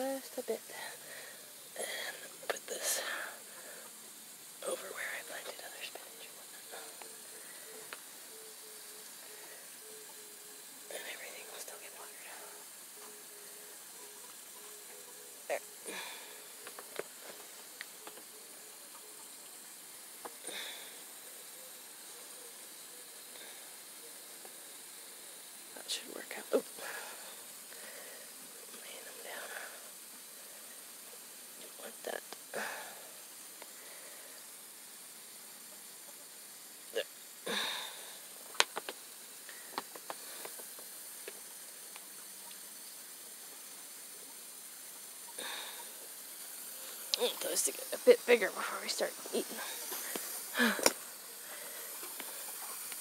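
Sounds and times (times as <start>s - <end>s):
water hissing from hose: 0.0s - 53.0s
small clicks and taps: 38.5s - 39.0s.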